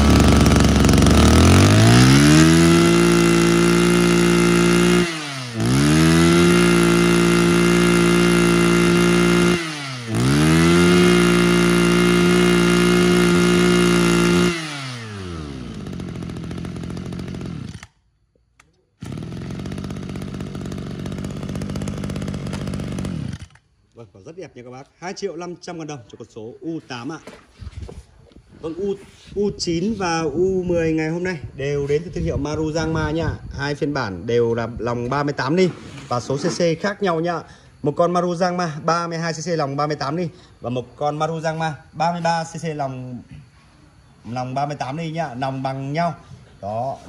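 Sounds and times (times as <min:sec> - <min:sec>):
brush cutter engine revving: 0:00.0 - 0:18.0, 0:19.0 - 0:23.7.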